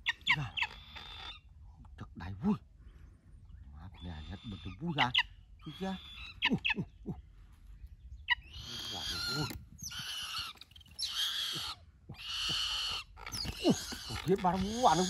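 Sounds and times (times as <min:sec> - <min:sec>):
bird screeching: 0:00.0 - 0:01.5, 0:04.0 - 0:06.8, 0:08.3 - 0:15.0.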